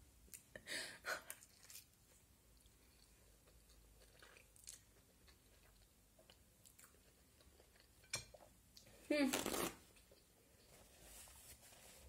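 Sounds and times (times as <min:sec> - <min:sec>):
person chewing food: 0:01.2 - 0:10.8.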